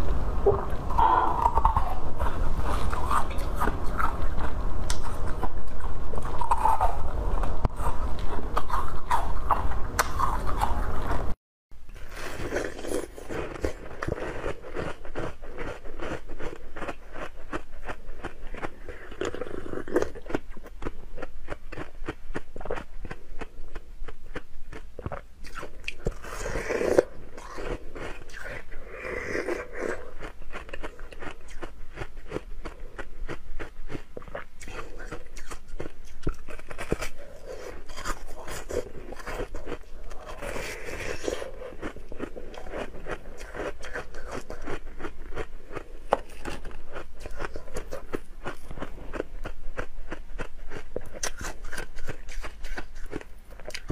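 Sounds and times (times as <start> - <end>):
ice being chewed crunching: 12.1 - 53.9.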